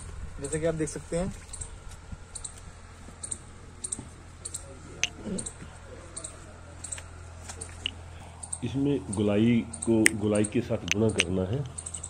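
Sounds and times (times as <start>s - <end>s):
low steady hum: 0.0s - 12.0s
sharp high clicks: 9.7s - 12.0s.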